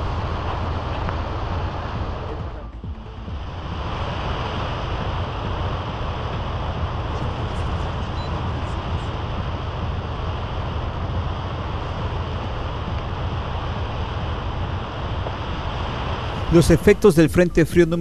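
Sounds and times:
rain: 0.0s - 18.0s
strong storm wind: 0.0s - 18.0s.

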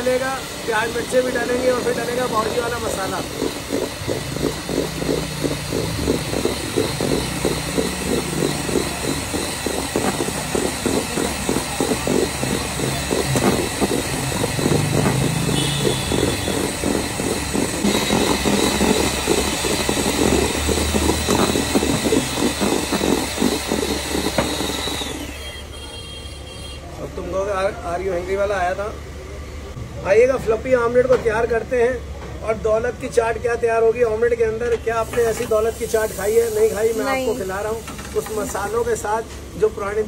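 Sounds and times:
electric hand mixer whine: 0.0s - 25.8s, 35.3s - 39.0s
beaters rattling against bowl: 1.4s - 24.6s.

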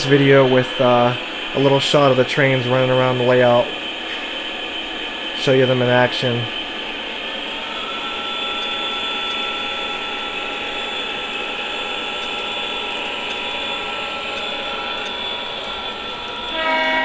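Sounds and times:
held locomotive tones: 0.0s - 17.0s
model train wheels rumbling: 0.0s - 17.0s
electronic train horn: 7.5s - 17.0s.

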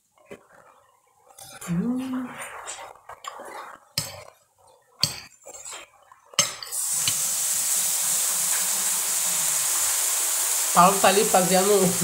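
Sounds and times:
cutlery clinking against dishes: 5.0s - 7.2s
sausages sizzling in a pan: 6.7s - 12.0s.

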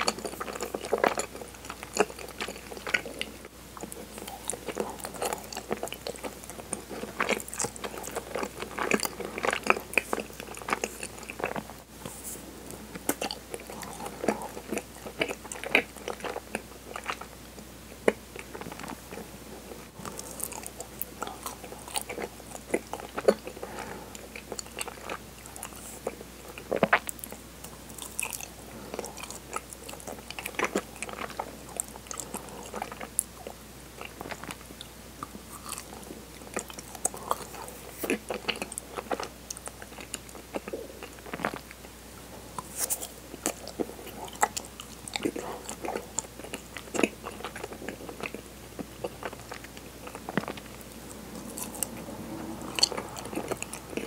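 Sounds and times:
close mouth chewing: 0.0s - 17.3s, 18.0s - 41.8s, 42.5s - 54.0s.

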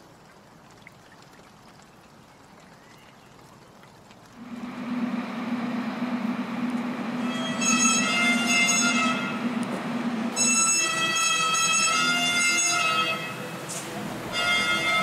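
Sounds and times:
train rumbling: 4.4s - 15.0s
high-pitched wheel squeal: 7.1s - 9.6s, 10.2s - 13.4s.

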